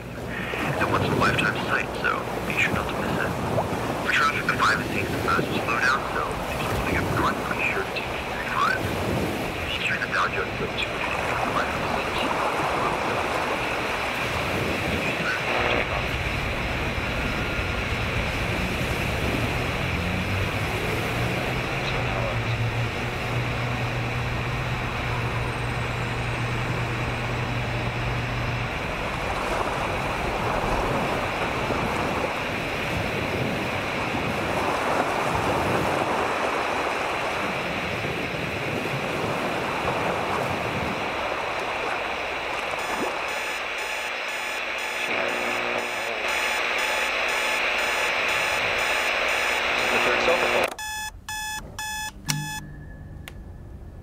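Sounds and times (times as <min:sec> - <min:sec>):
ocean waves on a beach: 0:00.0 - 0:52.6
low steady hum: 0:09.5 - 0:32.6, 0:41.4 - 0:54.0.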